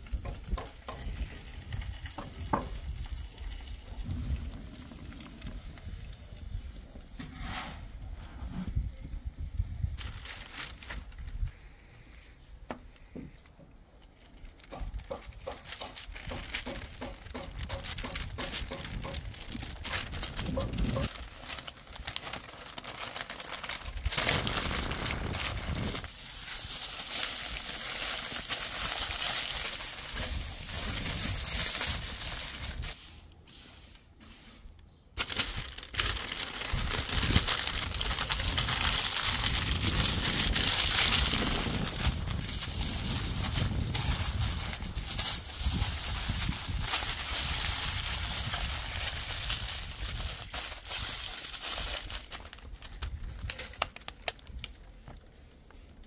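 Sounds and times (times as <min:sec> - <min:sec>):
paper crinkling and rustling: 0:09.6 - 0:12.2, 0:12.8 - 0:33.0, 0:35.2 - 0:56.0.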